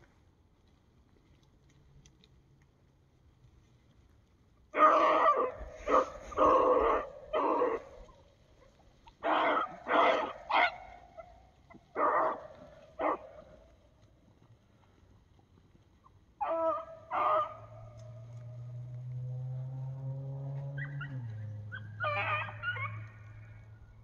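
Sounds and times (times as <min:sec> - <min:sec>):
dog barking: 0:04.8 - 0:07.8, 0:09.2 - 0:10.9, 0:12.0 - 0:13.4, 0:16.4 - 0:17.8, 0:20.8 - 0:23.5.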